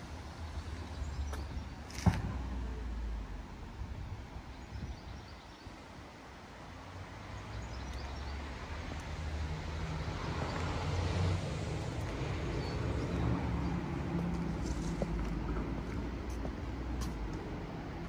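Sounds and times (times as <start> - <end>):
vehicle passing rumble: 8.5 - 18.0.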